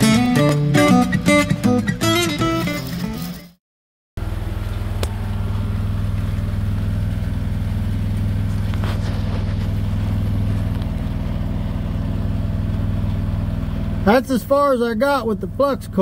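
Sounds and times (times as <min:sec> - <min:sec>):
welder engine running: 0:04.2 - 0:16.0.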